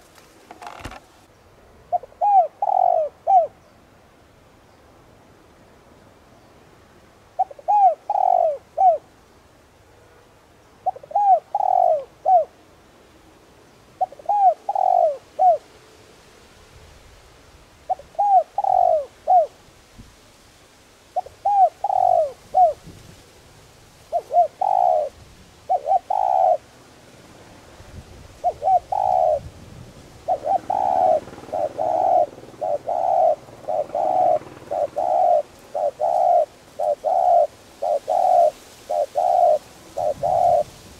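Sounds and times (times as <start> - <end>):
dove cooing: 0.0 - 1.0, 1.9 - 3.6, 7.4 - 9.0, 10.8 - 12.6, 14.0 - 15.7, 17.9 - 19.6, 21.2 - 22.9, 24.1 - 26.7, 28.4 - 29.6, 30.2 - 40.9.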